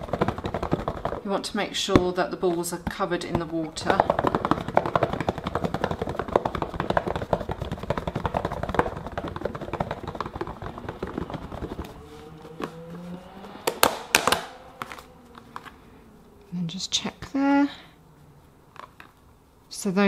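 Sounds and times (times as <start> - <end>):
plastic box rattling when shaken: 0.0 - 13.0.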